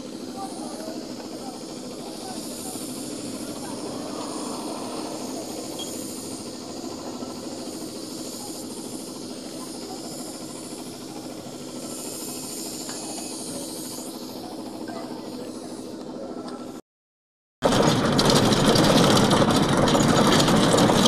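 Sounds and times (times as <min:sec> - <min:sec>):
hissing outdoor background noise: 0:00.0 - 0:16.8.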